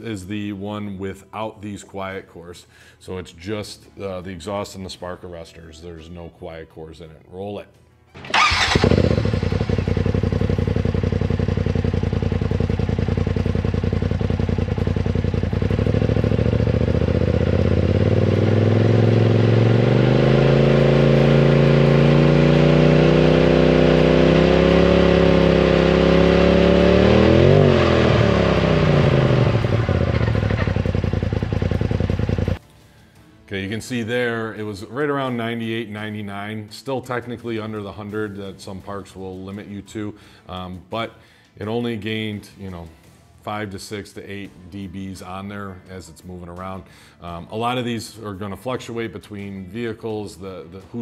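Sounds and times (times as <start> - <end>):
turbocharged engine revving: 8.2 - 32.6.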